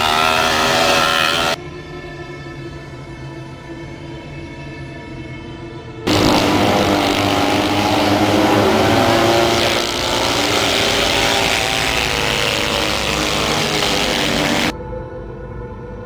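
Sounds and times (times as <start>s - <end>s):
racing engines running hard: 6.1s - 14.7s.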